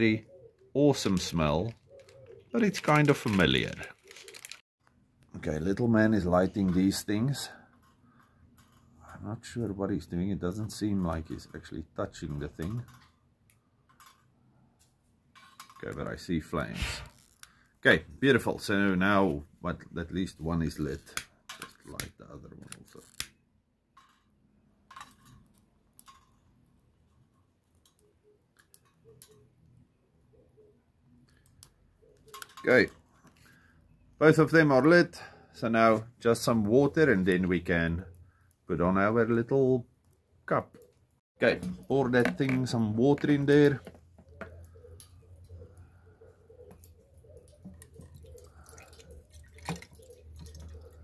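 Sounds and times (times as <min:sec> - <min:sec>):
water pouring into metal cup: 0:47.4 - 0:51.0.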